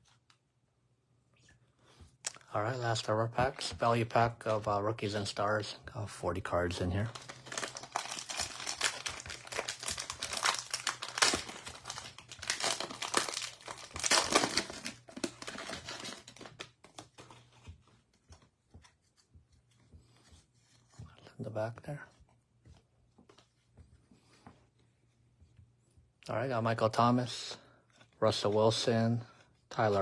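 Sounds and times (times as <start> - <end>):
plastic wrapper crinkling and tearing: 6.9 - 17.6
cards rustling and clicking: 6.9 - 25.8.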